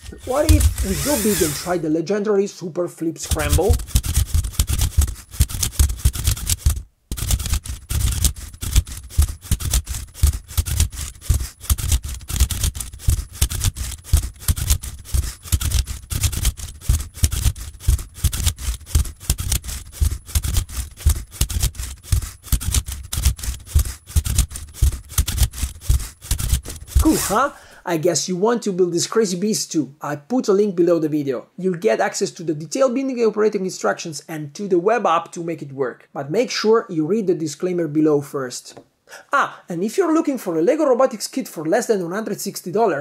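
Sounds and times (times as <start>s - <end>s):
robot motors and gears clattering: 0.0s - 1.8s, 3.3s - 27.4s.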